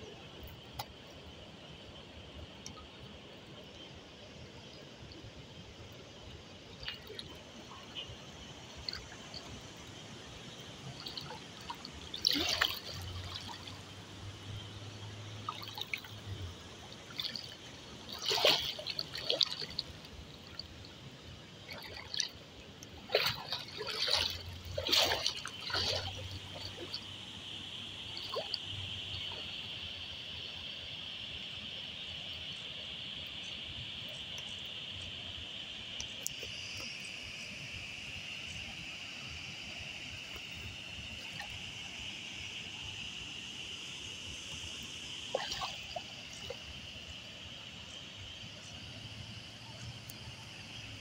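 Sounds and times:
water splashing from wading: 0.0 - 32.6, 35.5 - 51.0
steady high hiss: 26.3 - 51.0.

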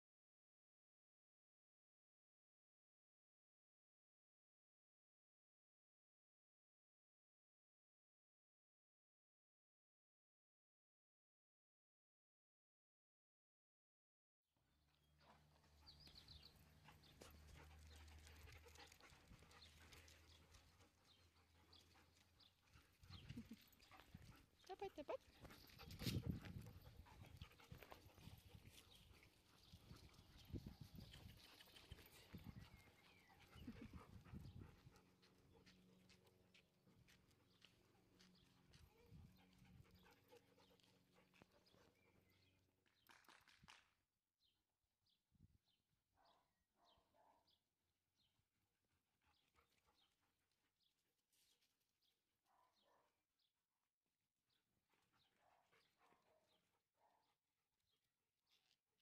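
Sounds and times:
dogs panting: 15.2 - 42.6.

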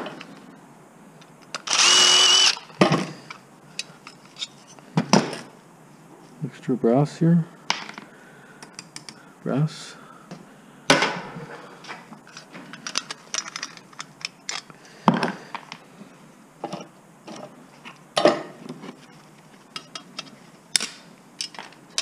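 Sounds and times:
metal parts clicking and clanking: 12.2 - 14.7, 19.8 - 22.0.

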